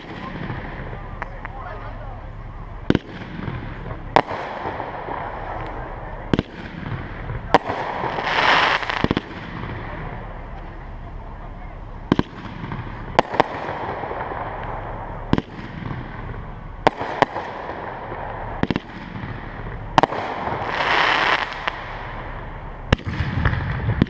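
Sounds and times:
firework fizzing hiss: 0:02.6 - 0:10.7, 0:12.3 - 0:23.6
firework shells bursting: 0:12.0 - 0:24.0.

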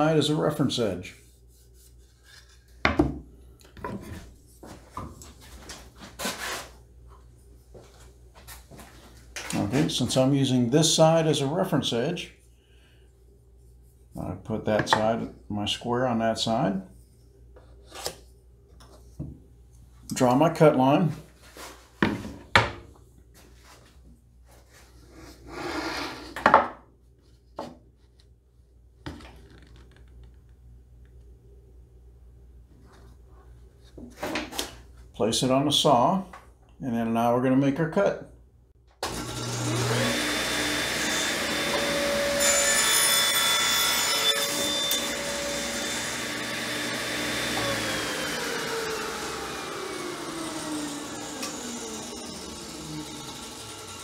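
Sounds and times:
board sliding scrape: 0:06.0 - 0:06.8, 0:24.7 - 0:26.4.

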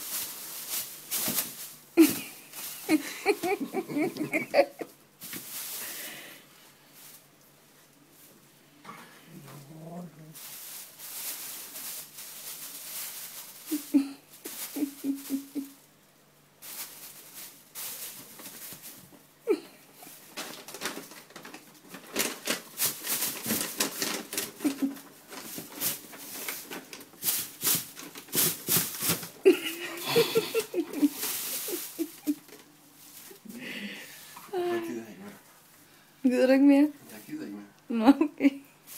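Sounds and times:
plastic bag crinkling: 0:00.0 - 0:06.1, 0:10.4 - 0:15.9, 0:16.6 - 0:19.1, 0:20.0 - 0:33.5.

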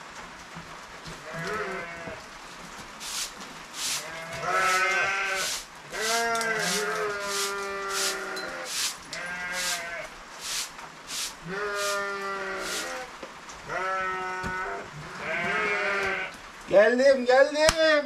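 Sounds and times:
livestock bleating: 0:01.2 - 0:02.2, 0:04.0 - 0:10.1, 0:11.4 - 0:16.4.

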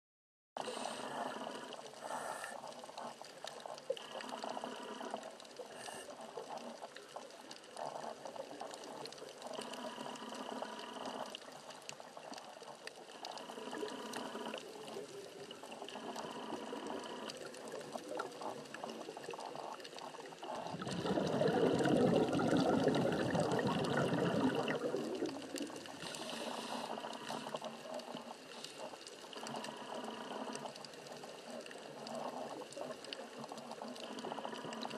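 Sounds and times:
underwater regulator bubbling: 0:00.7 - 0:34.9
rush of exhaled bubbles: 0:13.6 - 0:28.3.

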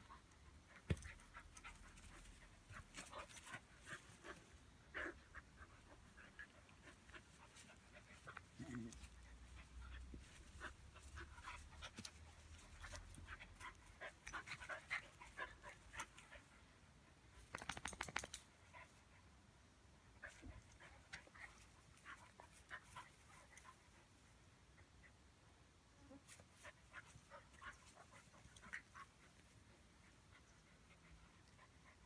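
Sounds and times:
dog panting: 0:00.0 - 0:16.7.

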